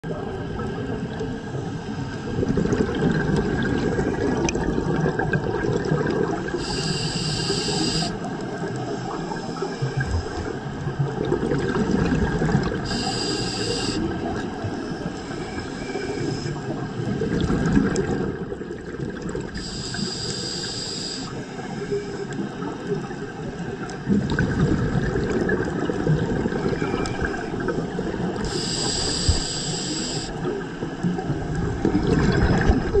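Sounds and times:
underwater regulator bubbling: 2.3s - 15.0s, 15.8s - 21.4s, 23.8s - 33.0s
regulator hiss: 6.6s - 8.3s, 12.9s - 14.1s, 19.6s - 22.4s, 28.4s - 30.5s.

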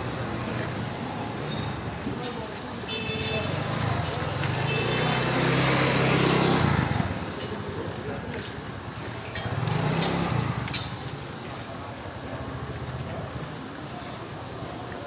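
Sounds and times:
vehicle engine running: 3.6s - 14.7s.

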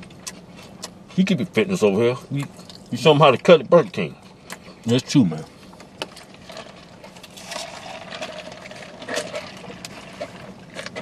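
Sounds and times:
chewing and mouth noises: 0.0s - 1.3s, 5.7s - 11.0s
faint steady hum: 0.0s - 11.0s.

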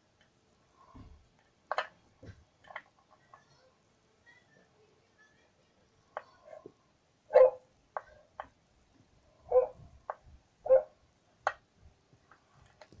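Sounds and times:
dogs barking: 7.3s - 7.7s, 9.5s - 9.9s, 10.6s - 11.0s.

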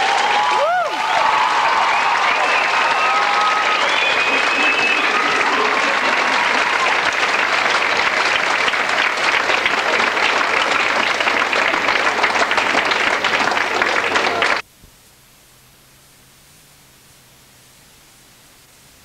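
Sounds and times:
audience applauding: 0.0s - 14.6s
faint hiss: 14.6s - 19.0s.

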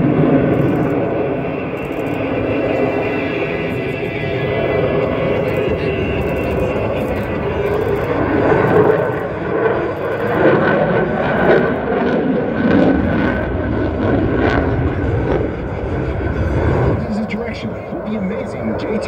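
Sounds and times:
airplane engine roar overhead: 0.0s - 19.0s.

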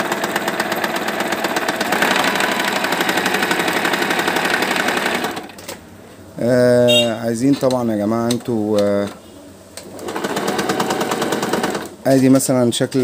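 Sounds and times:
sewing machine stitching: 0.0s - 5.7s, 9.8s - 12.0s.

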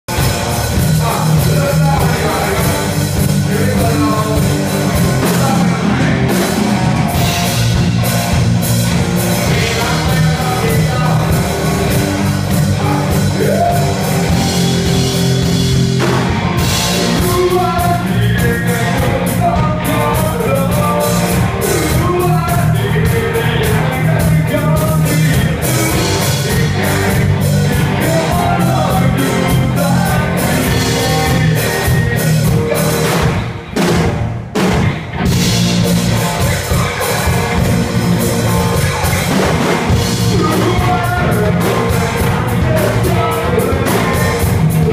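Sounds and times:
rock band playing live: 0.0s - 44.9s
person singing into a microphone: 0.8s - 6.4s, 9.3s - 14.6s, 16.7s - 33.1s, 38.7s - 44.9s.

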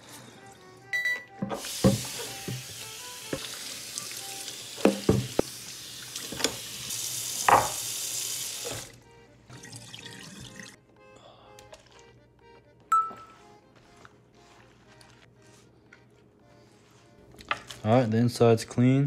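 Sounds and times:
faucet water running on wood: 1.5s - 10.8s.

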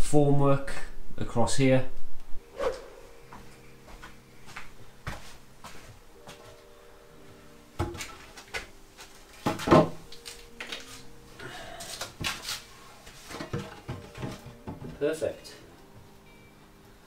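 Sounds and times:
wooden boards clunking: 9.4s - 10.2s, 13.3s - 15.0s.

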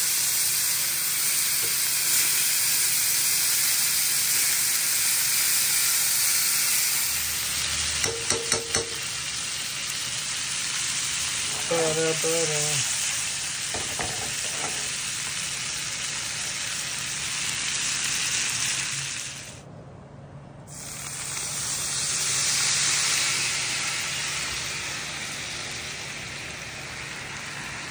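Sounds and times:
steak sizzling in a pan: 0.0s - 19.6s, 20.7s - 27.9s
wine poured into hot pan: 0.1s - 8.2s, 20.8s - 27.9s.

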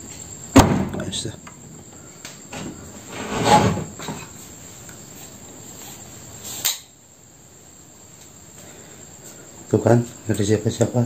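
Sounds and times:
background hiss: 0.0s - 11.0s
crickets chirring: 0.0s - 11.0s
sharp click: 6.6s - 6.9s.

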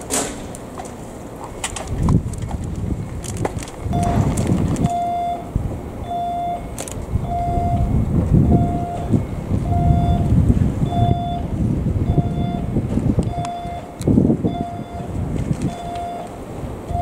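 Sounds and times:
electric train rumbling: 0.0s - 17.0s
electronic warning beeps: 3.9s - 4.2s, 4.8s - 17.0s.

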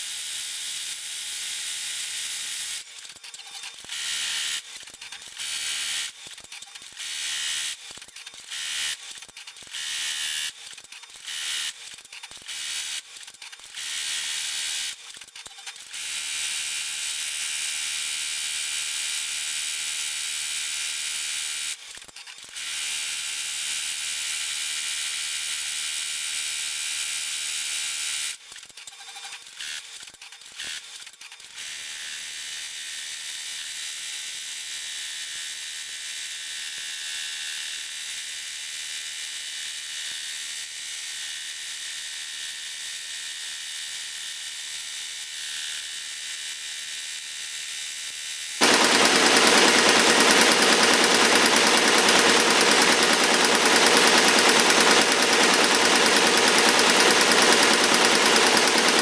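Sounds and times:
embroidery machine stitching: 48.6s - 59.0s.

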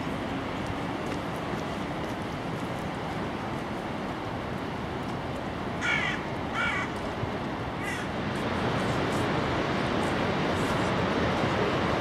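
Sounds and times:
crow cawing: 5.8s - 6.9s, 7.8s - 8.1s.

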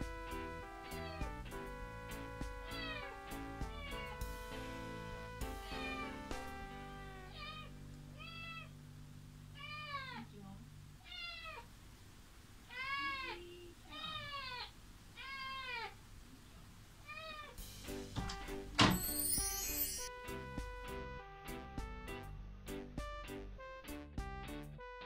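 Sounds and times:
kitten meowing: 2.6s - 3.1s, 5.6s - 8.7s, 9.6s - 10.3s, 11.0s - 11.7s.

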